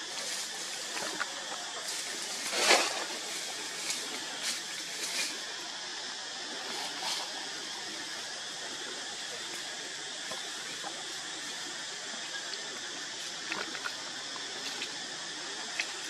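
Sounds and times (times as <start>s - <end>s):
noisy rustle: 0.0s - 11.7s
steady outdoor hiss: 0.0s - 16.0s.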